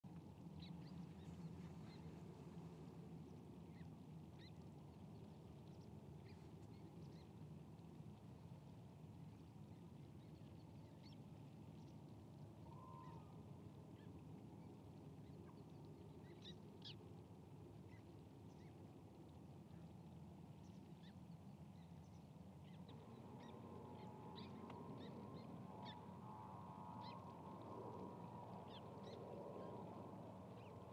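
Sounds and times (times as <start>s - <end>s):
faint steady hum: 0.0s - 30.9s
faint bird calls: 12.6s - 13.4s.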